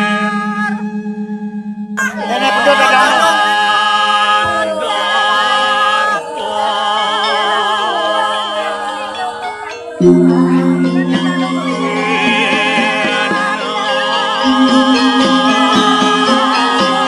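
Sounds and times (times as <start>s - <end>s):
voices singing long notes: 0.0s - 17.0s
steady drone: 10.0s - 17.0s.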